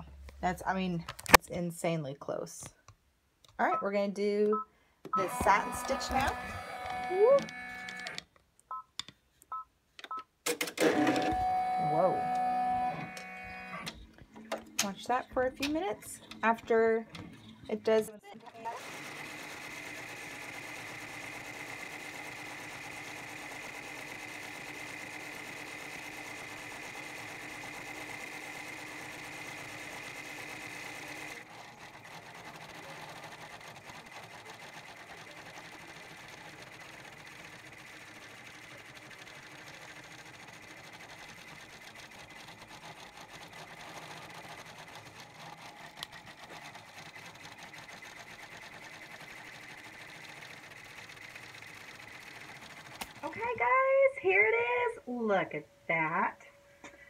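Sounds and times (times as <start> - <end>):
embroidery machine humming: 5.2 - 8.2, 10.8 - 17.9.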